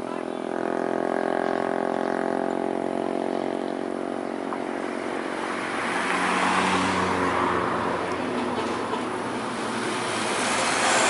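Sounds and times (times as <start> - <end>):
diesel engine drone: 0.0 - 11.0
bus rushing past: 4.6 - 11.0.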